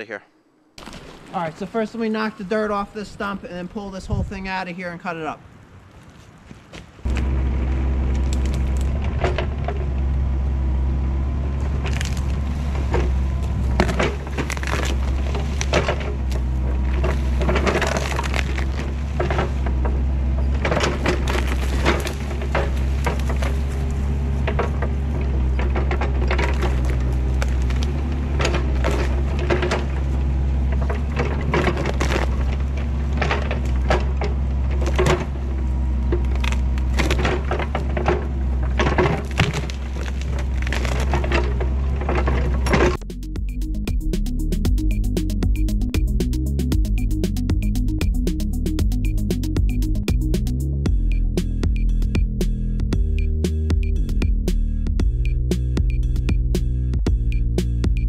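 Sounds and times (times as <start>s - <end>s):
wood and roots cracking: 7.1s - 10.2s, 11.5s - 43.0s
excavator diesel engine running: 7.1s - 58.0s.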